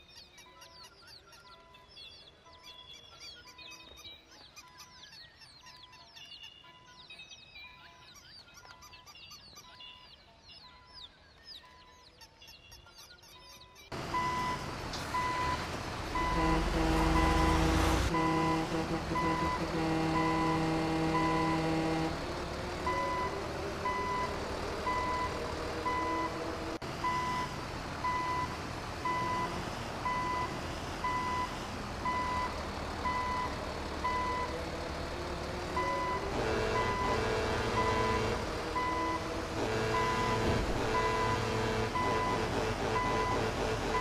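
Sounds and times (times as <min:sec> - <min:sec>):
low engine rumble: 0:13.9 - 0:44.0
vehicle reversing beeper: 0:14.1 - 0:22.2, 0:22.8 - 0:34.6, 0:35.7 - 0:44.0.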